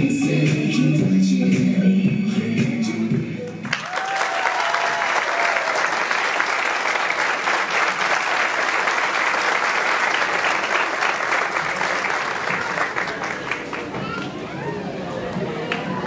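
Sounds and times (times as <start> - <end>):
audience applauding: 3.6 - 14.4.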